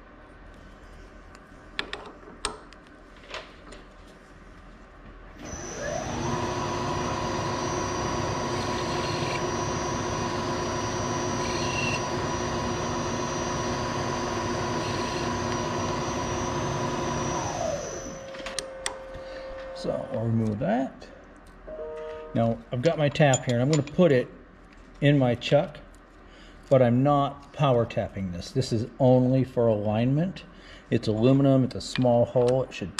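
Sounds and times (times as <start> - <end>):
milling machine motor running: 5.4 - 18.4.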